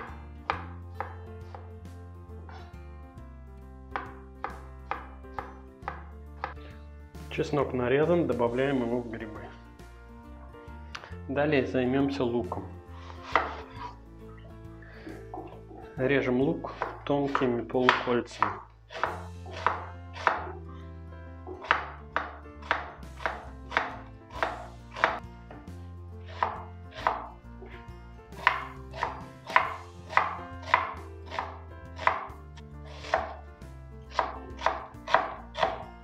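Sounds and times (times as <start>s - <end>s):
knife chopping on wooden board: 0.0s - 1.7s, 3.9s - 6.7s, 12.5s - 13.9s, 16.6s - 20.6s, 21.4s - 33.4s, 34.1s - 35.9s.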